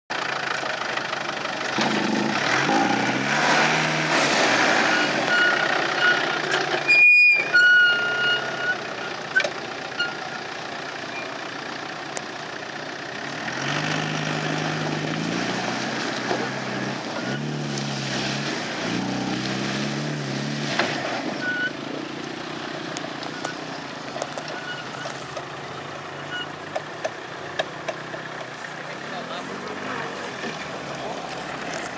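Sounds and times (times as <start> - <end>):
diesel engine revving: 0.1 - 31.9.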